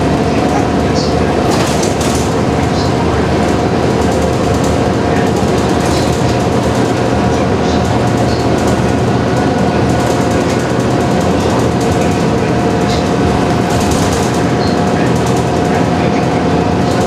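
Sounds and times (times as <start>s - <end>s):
bus engine drone with whine: 0.0s - 17.0s
road and tyre noise: 0.0s - 17.0s
cabin rattles and ticks: 0.4s - 16.0s.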